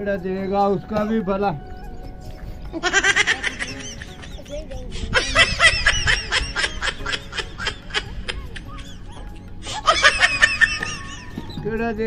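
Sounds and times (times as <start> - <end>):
high-pitched giggles: 1.8 - 11.6.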